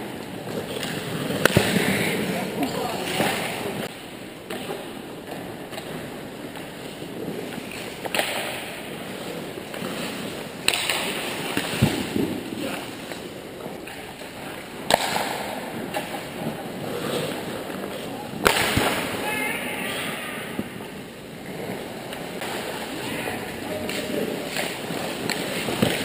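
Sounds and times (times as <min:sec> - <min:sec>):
stick hitting puck: 0:00.5 - 0:02.2, 0:07.5 - 0:10.0, 0:10.6 - 0:12.1, 0:13.8 - 0:16.4, 0:23.8 - 0:26.0.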